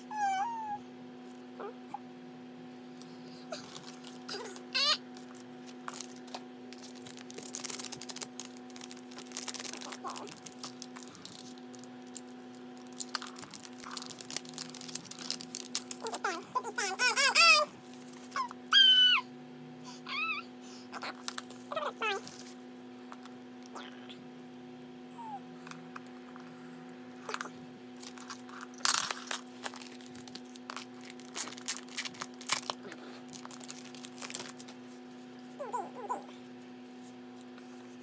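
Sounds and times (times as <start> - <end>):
pet whining: 0.0 - 0.9, 3.3 - 5.0, 16.0 - 22.2, 25.1 - 25.5, 35.6 - 36.4
steady low hum: 0.0 - 38.0
packaging crinkling and tapping: 5.1 - 16.2, 28.0 - 34.8.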